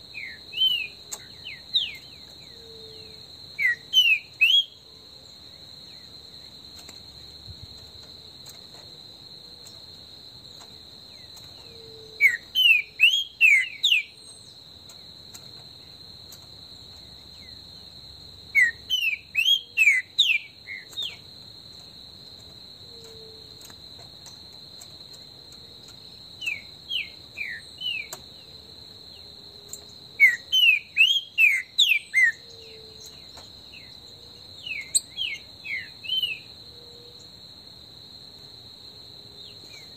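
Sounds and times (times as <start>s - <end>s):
bird singing whistled notes: 0.1s - 4.8s, 11.6s - 14.6s, 18.5s - 21.2s, 26.4s - 28.2s, 30.2s - 34.0s, 34.6s - 36.5s.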